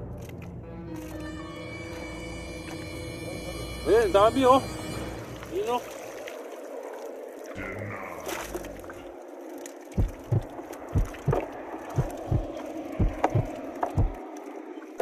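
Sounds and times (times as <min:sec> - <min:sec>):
water sloshing: 0:05.2 - 0:07.6, 0:08.2 - 0:15.0.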